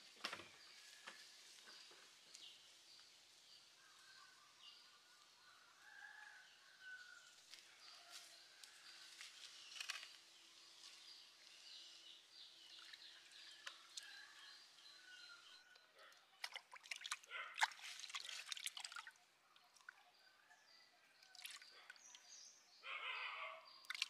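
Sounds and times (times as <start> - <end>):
water splashing in a pot: 16.4 - 20.0, 21.3 - 21.7.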